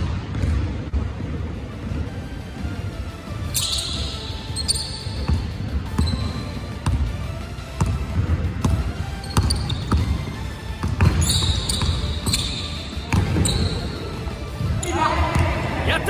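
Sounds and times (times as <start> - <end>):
basketball bouncing on hardwood floor: 0.0 - 0.7, 7.8 - 10.2, 10.8 - 12.5.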